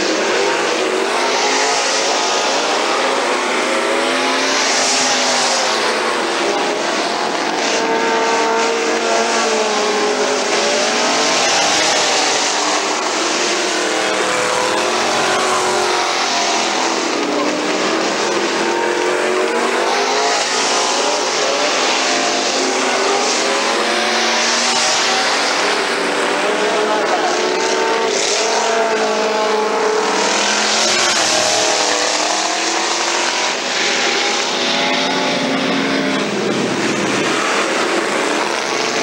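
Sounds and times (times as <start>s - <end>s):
race car engines: 0.0s - 39.0s.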